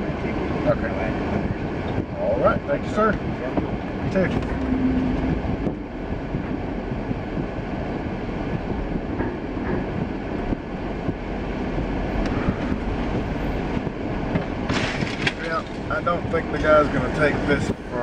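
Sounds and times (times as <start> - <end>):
vehicle engine and road noise: 0.0 - 18.0
tyres on wet pavement: 5.2 - 18.0.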